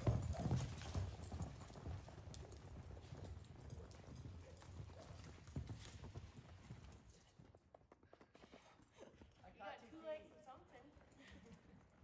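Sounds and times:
hoofbeats in soft dirt: 0.0 - 12.0.

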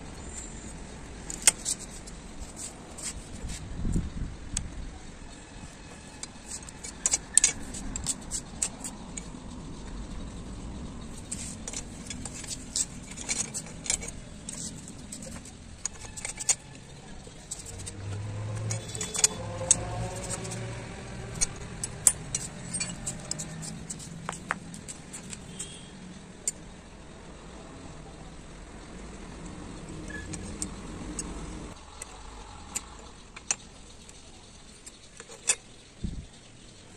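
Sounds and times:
rebar clinking against steel: 5.4 - 9.9, 11.1 - 26.6.

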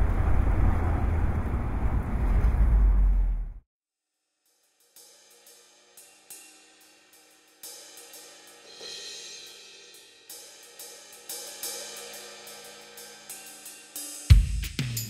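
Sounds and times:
cymbal and hi-hat strikes: 4.4 - 15.0.

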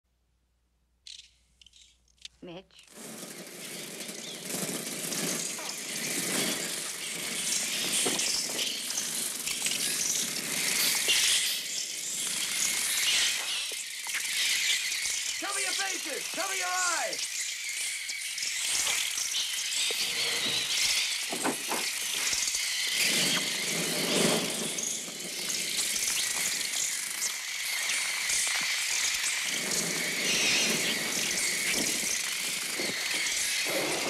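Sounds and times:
fluttering rushing noise: 2.9 - 13.6, 21.9 - 34.0
synthesized sparrows shrieking: 3.6 - 21.3, 29.3 - 34.0.

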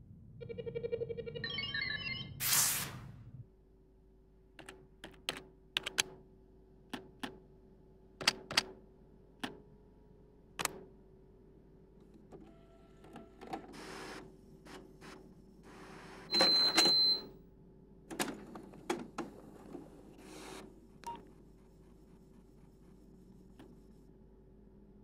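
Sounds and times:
keyboard key clicks: 4.6 - 6.2.

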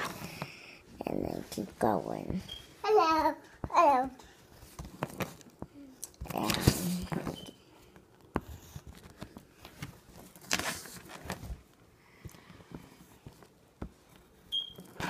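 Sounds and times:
paper rustling: 8.3 - 11.8.

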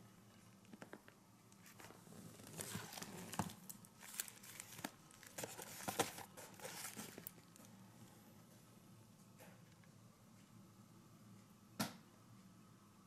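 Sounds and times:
plastic wrapping crinkling: 0.6 - 7.7.

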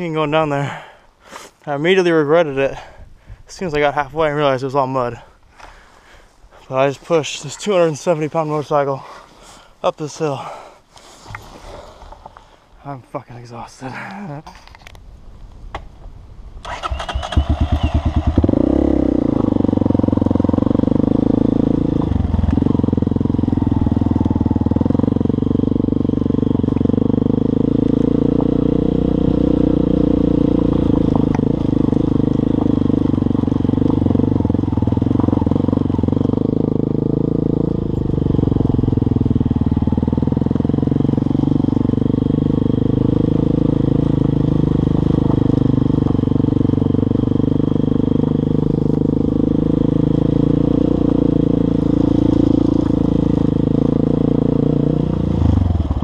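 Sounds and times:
motorcycle engine starting and running: 16.6 - 56.0.

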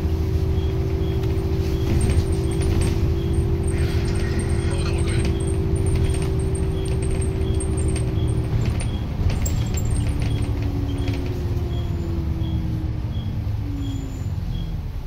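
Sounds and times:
bus engine running: 0.0 - 15.0
interior fittings rattling: 0.7 - 11.9.

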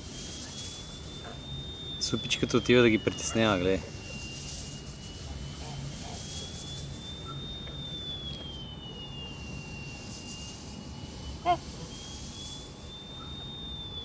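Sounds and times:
faint high tone: 8.3 - 11.9.

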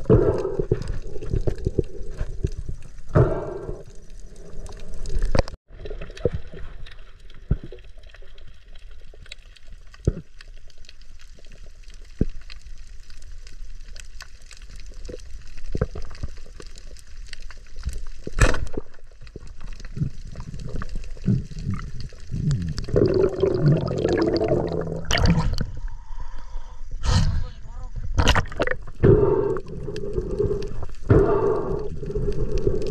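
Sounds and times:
small underwater clicks and knocks: 0.0 - 24.4
muffled underwater hiss: 19.8 - 32.9.

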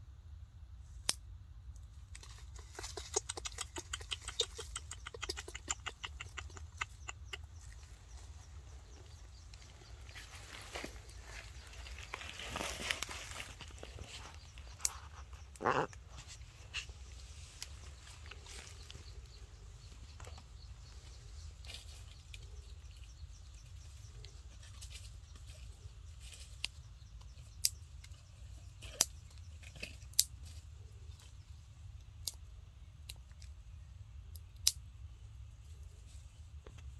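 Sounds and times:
low steady hum: 0.0 - 36.9
dry leaves rustling: 7.6 - 15.3.

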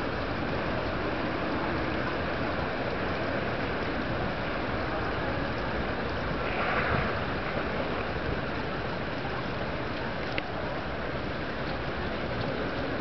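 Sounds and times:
moving water: 0.0 - 13.0
wind: 0.0 - 13.0.

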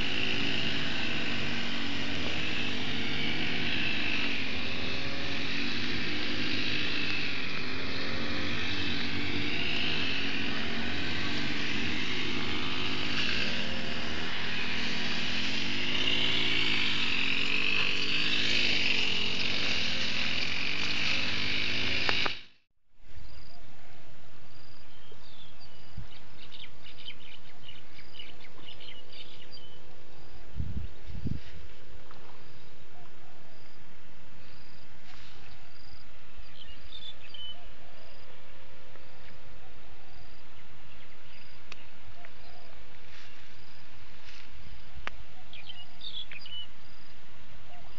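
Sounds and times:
grass trimmer engines revving: 0.0 - 22.7, 38.1 - 47.2.

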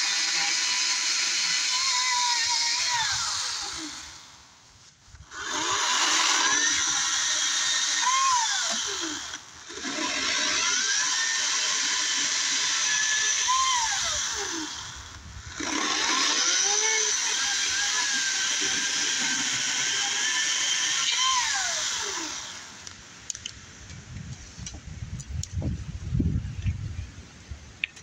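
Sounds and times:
electric chainsaw cutting branches: 0.0 - 4.3, 5.2 - 22.9.

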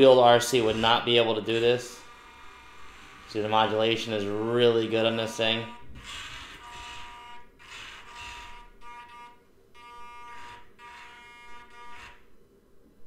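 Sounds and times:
electric motor whining: 0.4 - 3.8, 5.6 - 12.2.

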